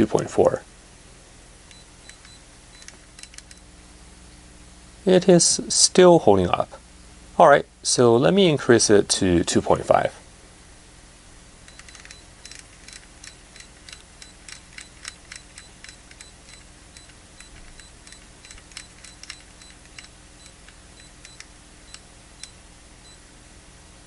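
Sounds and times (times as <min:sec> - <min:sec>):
cooling fan hum: 0:00.0 - 0:24.0
rotary knob detent clicks: 0:01.7 - 0:03.6, 0:11.6 - 0:22.6.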